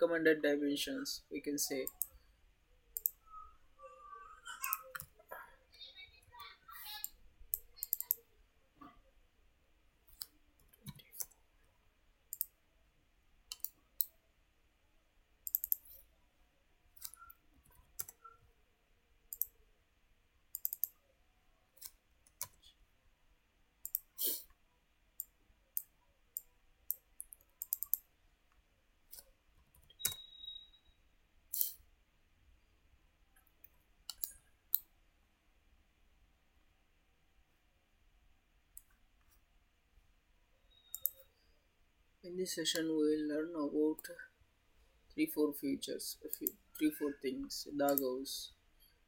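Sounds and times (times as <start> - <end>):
computer mouse clicking: 1.8 - 2.2, 3.0 - 3.2, 4.6 - 5.2, 6.9 - 8.2, 10.1 - 11.4, 12.3 - 12.6, 13.5 - 14.1, 15.4 - 16.1, 17.0 - 18.3, 19.3 - 19.6, 20.5 - 21.0, 23.8 - 24.5, 25.2 - 28.1, 29.1 - 30.3, 31.5 - 31.8, 33.4 - 34.9, 40.9 - 41.3, 46.3 - 46.6, 47.9 - 48.1.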